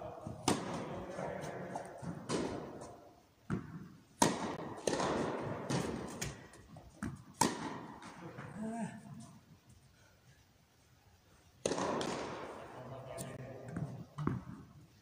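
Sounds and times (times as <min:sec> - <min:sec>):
racquets hitting tennis ball: 0:00.2 - 0:08.6, 0:11.6 - 0:14.8
tennis ball bouncing: 0:00.3 - 0:08.5, 0:11.6 - 0:12.6, 0:13.3 - 0:14.7.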